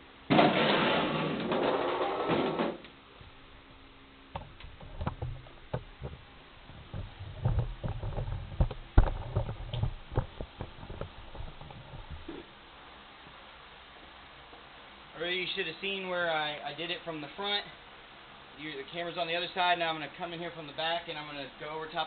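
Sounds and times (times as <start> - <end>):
knocks and low thumps: 4.4 - 12.5.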